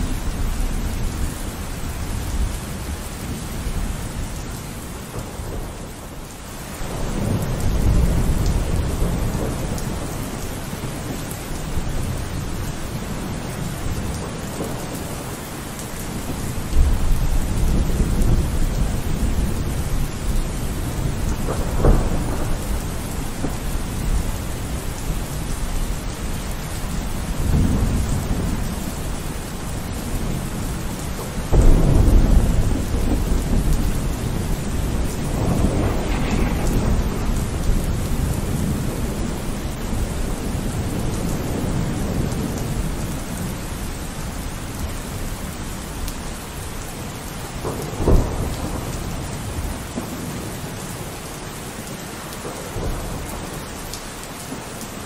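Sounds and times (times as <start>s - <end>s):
rain: 0.0s - 55.0s
wind gusting on microphone: 16.2s - 44.0s.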